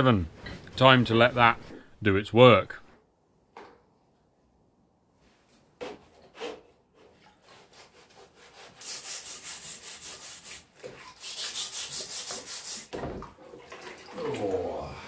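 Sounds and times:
hand scrubbing metal in liquid: 0:08.8 - 0:14.9.

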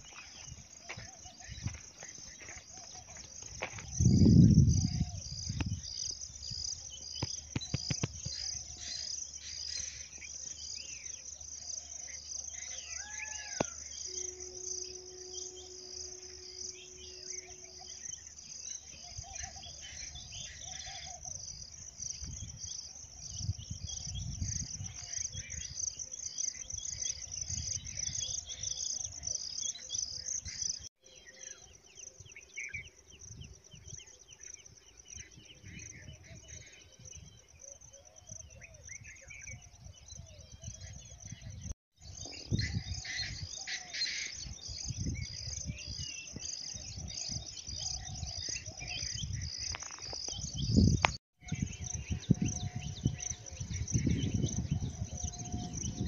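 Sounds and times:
insects chirping: 0:00.0 - 0:56.0
wind rumble on microphone: 0:03.5 - 0:08.6, 0:19.1 - 0:25.9, 0:35.1 - 0:43.7, 0:44.3 - 0:56.0.

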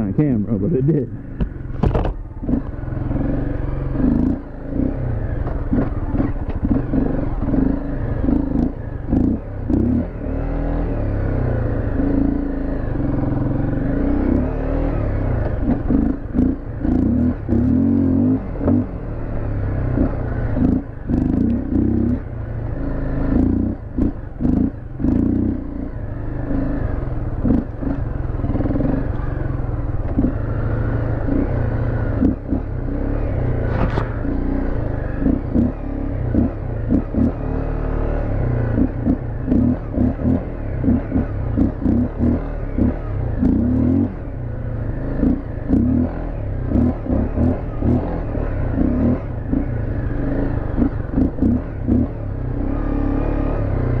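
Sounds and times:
dirt bike engine: 0:00.0 - 0:54.0.

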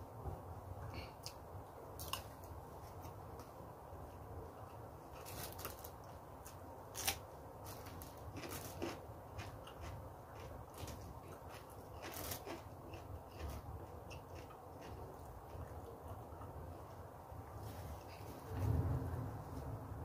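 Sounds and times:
chewing with wet mouth clicks: 0:08.4 - 0:16.6.

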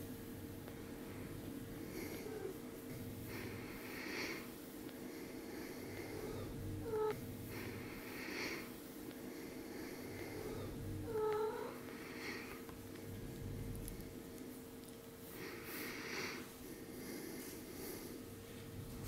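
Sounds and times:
soft breathy sounds: 0:00.6 - 0:19.0
kitten mewing: 0:06.4 - 0:07.2, 0:11.0 - 0:12.4.

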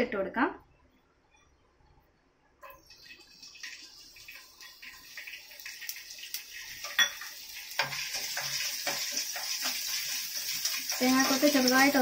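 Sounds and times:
coconut sizzling in hot oil: 0:02.6 - 0:12.0
steel bowl clinking against pan: 0:06.8 - 0:11.8.

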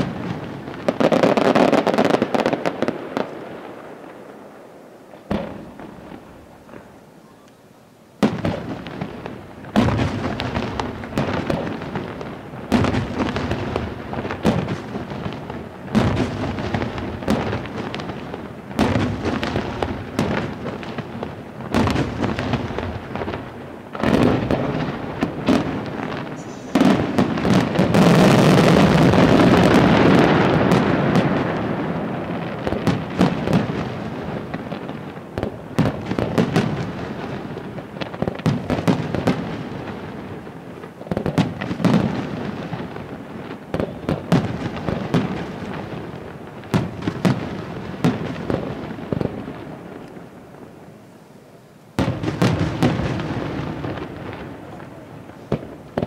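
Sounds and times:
fireworks bursting with bangs: 0:00.0 - 0:07.5, 0:08.2 - 0:51.0, 0:51.9 - 0:56.0.

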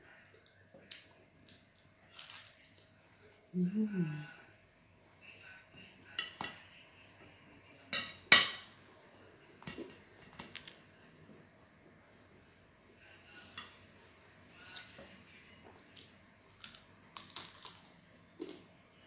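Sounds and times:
crunchy pizza eating sounds: 0:00.2 - 0:03.5, 0:14.6 - 0:18.7.

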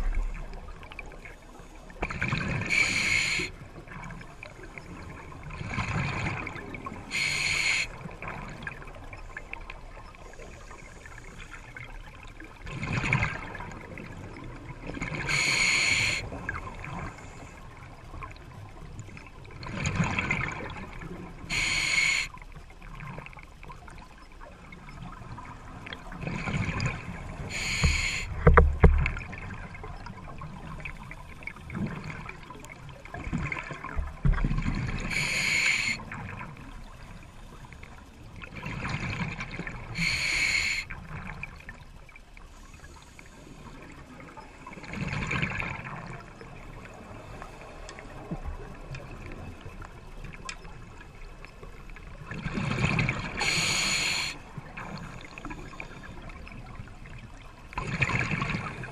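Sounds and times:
exhaled bubbles rushing: 0:00.0 - 0:01.2
regulator inhale hiss: 0:02.6 - 0:03.6, 0:07.1 - 0:08.0, 0:15.2 - 0:16.3, 0:21.5 - 0:22.3, 0:27.4 - 0:28.4, 0:35.0 - 0:36.0, 0:39.9 - 0:40.9, 0:53.4 - 0:56.2.

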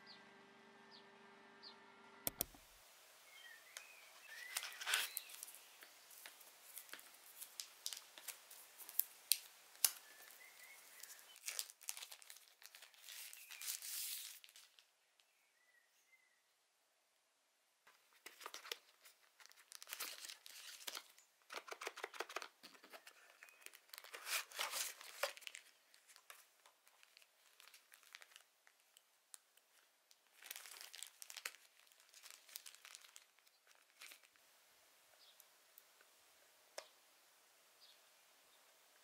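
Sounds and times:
sharp click: 0:02.2 - 0:02.6
plastic and cardboard crinkling: 0:03.8 - 0:14.9, 0:17.9 - 0:34.4.

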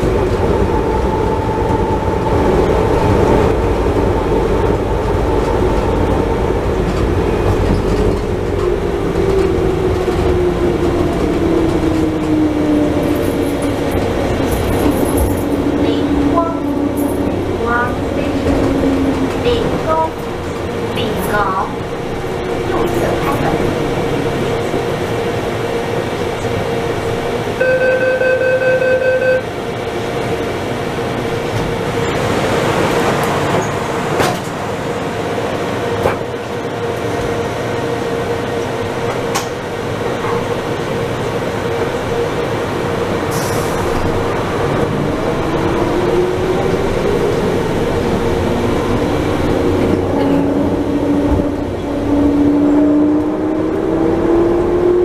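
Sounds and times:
train hum and rolling noise: 0:00.0 - 0:55.0
electronic beep: 0:27.6 - 0:29.4.

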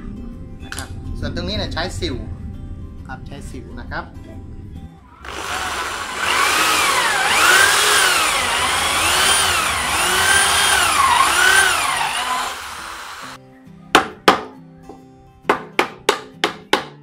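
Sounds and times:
electric drill boring into wood: 0:05.2 - 0:13.4.

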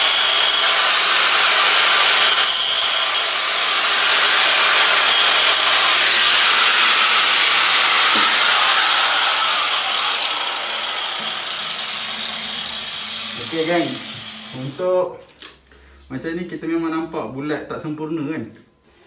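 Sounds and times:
angle grinder cutting into wall: 0:00.0 - 0:15.0.

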